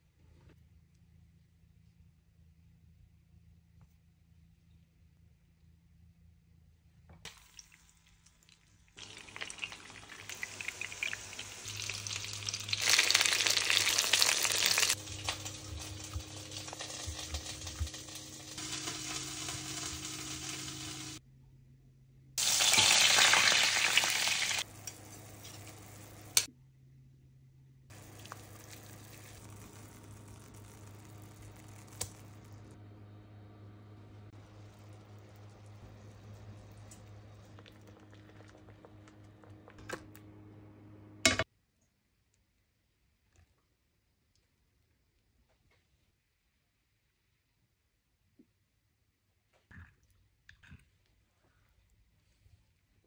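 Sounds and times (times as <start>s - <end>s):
chicken sizzling in a pan: 7.3s - 21.2s, 22.4s - 26.5s, 27.9s - 32.8s, 33.9s - 39.0s
stock simmering and bubbling: 7.3s - 21.2s, 27.9s - 32.8s, 33.8s - 39.8s.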